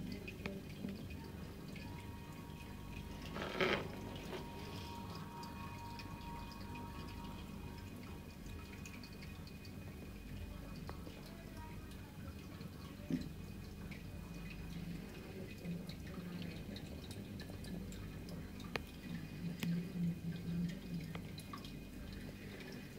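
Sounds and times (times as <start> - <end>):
filter low hum: 0.0 - 22.9
water trickling and dripping: 0.0 - 22.9
faint ticks: 19.6 - 19.8.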